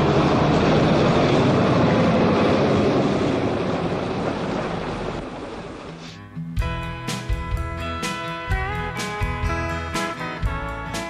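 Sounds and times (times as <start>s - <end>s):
truck engine and road noise: 0.0s - 11.0s.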